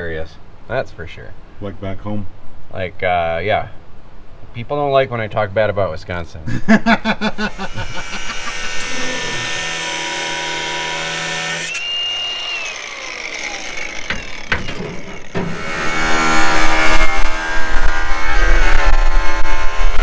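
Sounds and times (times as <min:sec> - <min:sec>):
angle grinder whining: 0:07.4 - 0:20.0
grinder grinding steel: 0:07.4 - 0:20.0.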